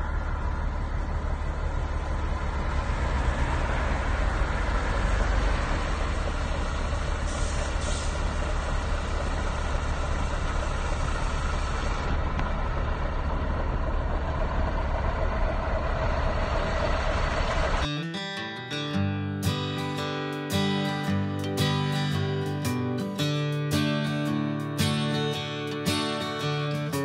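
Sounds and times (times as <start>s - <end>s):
diesel truck engine rumble: 0.0s - 17.9s
air brake hiss: 7.2s - 8.5s.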